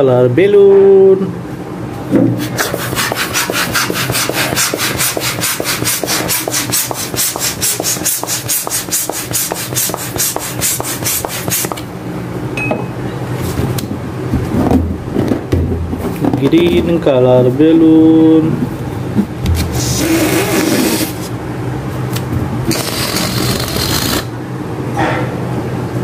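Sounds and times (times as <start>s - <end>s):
air pump rasping: 2.4s - 11.9s, 19.5s - 21.3s, 22.7s - 24.3s.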